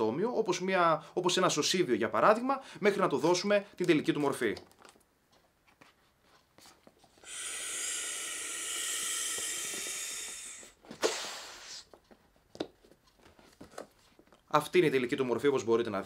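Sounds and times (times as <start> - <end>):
person blowing into valve: 7.2 - 12.0.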